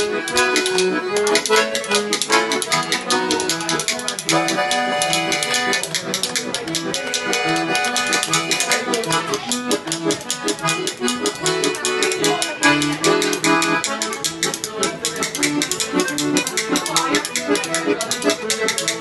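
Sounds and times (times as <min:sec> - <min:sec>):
accordion playing a lively tune: 0:00.0 - 0:19.0
spoons clicking a rhythm: 0:00.0 - 0:19.0.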